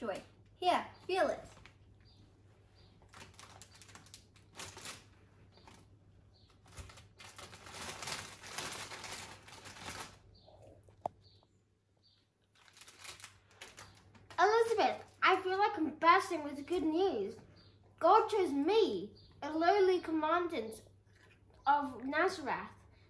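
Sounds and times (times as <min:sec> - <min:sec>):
rustling and crinkling: 0:00.0 - 0:11.5, 0:12.1 - 0:15.2, 0:21.0 - 0:21.7.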